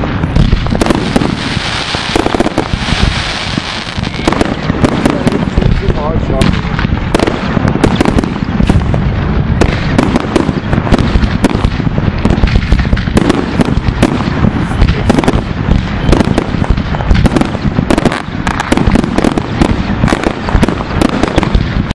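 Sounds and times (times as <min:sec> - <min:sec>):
fireworks bangs and crackles: 0:00.0 - 0:21.9.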